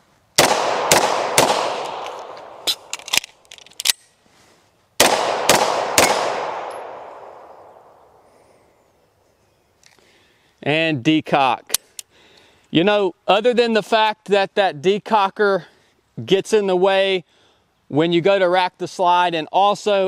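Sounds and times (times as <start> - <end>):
pistol shots: 0.4 - 2.9, 5.0 - 8.0
pistol reload clicks: 0.4 - 4.1.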